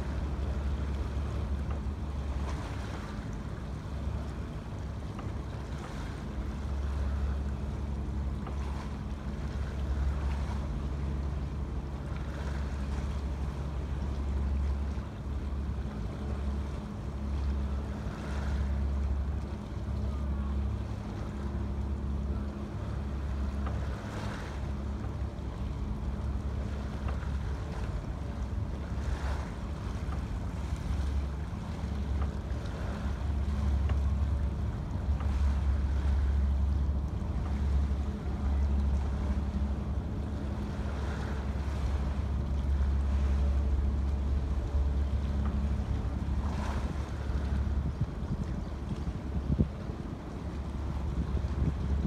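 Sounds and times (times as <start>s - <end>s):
steady low hum: 0.0s - 52.0s
water lapping at pilings: 0.0s - 52.0s
wind buffeting microphone: 27.6s - 52.0s.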